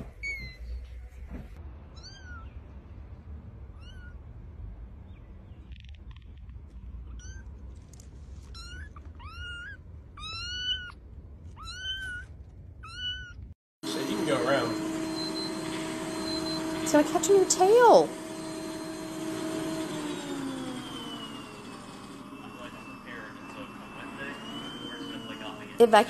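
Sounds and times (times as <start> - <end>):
cat meowing: 1.9 - 2.6, 3.7 - 4.2, 8.4 - 13.5.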